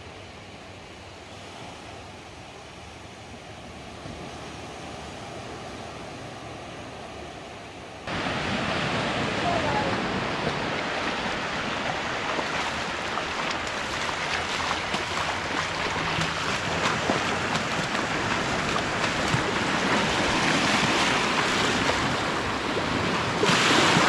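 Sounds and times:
small waves washing on beach: 0.3 - 24.0
feet splashing in shallow water: 8.4 - 24.0.

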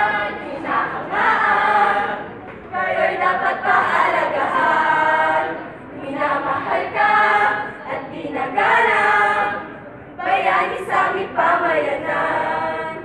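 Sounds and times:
group of voices singing a jingle: 0.0 - 13.0.

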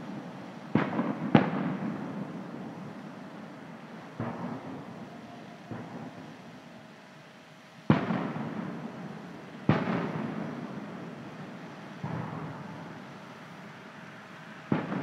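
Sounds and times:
firework booms echoing: 0.1 - 2.8, 4.2 - 6.5, 7.9 - 9.0, 9.6 - 10.8, 12.0 - 13.0, 14.7 - 15.0.

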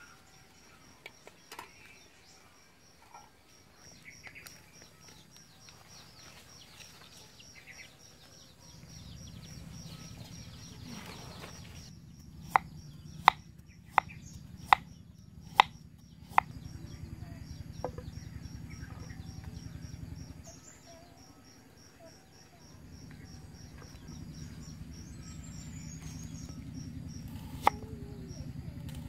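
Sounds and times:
insects chirping faintly: 0.0 - 28.9
knife chopping on wooden board: 12.4 - 14.8, 15.5 - 15.7.

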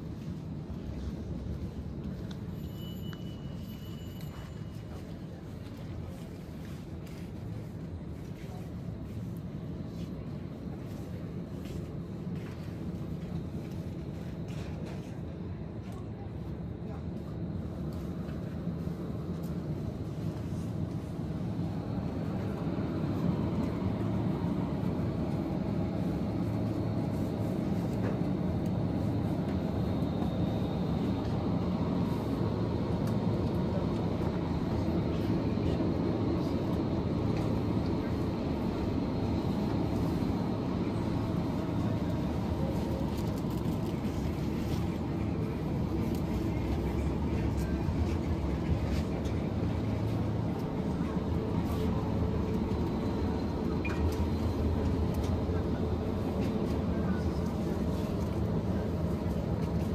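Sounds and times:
faint thin high tone: 2.5 - 4.9
faint voices: 4.3 - 59.9.

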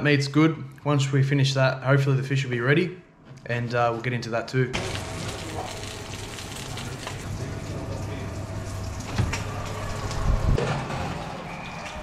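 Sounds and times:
sausages sizzling in frying pan: 4.8 - 7.8.

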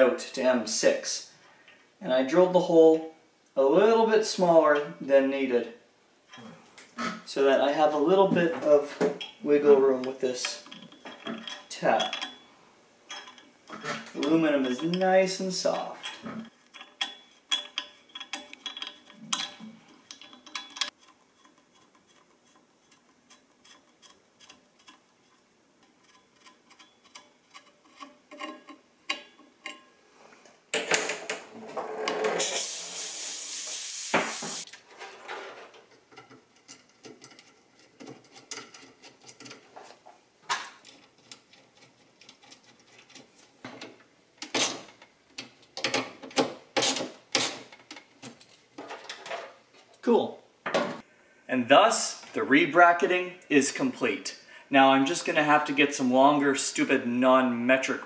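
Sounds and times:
small metal clicks and knocks: 10.0 - 12.5, 13.1 - 29.9, 35.7 - 39.9, 40.5 - 50.0.

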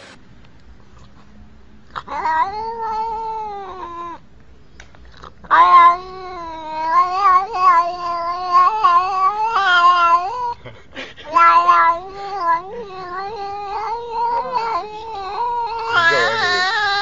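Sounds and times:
cat yowling: 1.9 - 4.2, 5.4 - 10.6, 11.3 - 17.0.

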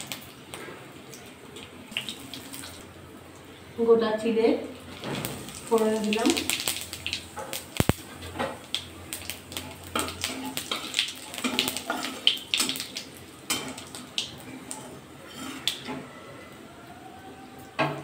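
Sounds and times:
spices crackling in hot oil: 0.0 - 3.6, 4.5 - 15.9
spatula scraping a pan: 15.2 - 16.1.

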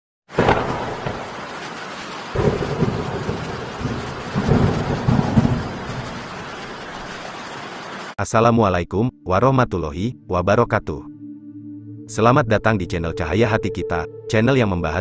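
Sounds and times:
rolling thunder: 0.3 - 7.2
rain hiss: 0.3 - 8.2.

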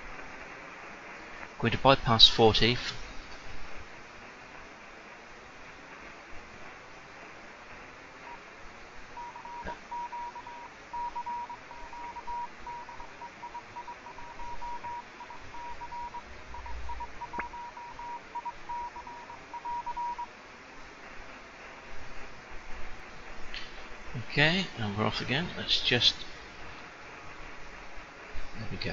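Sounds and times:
receiver hiss: 0.0 - 28.9
morse code tone: 9.2 - 20.3.

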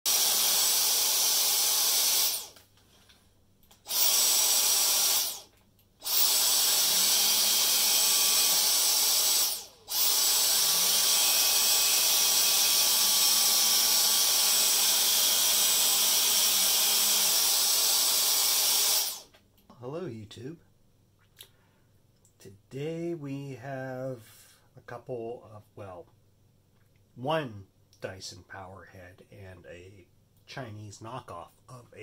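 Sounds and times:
stick vacuum running: 0.1 - 2.6, 3.8 - 19.2.

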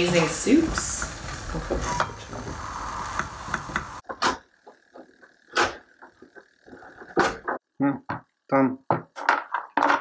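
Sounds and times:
bacon and vegetables frying: 0.0 - 5.4.

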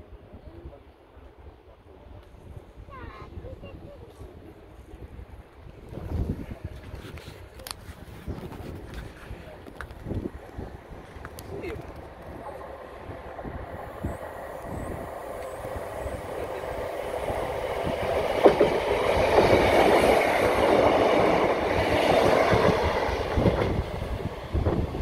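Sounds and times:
diesel train passing: 9.4 - 25.0.

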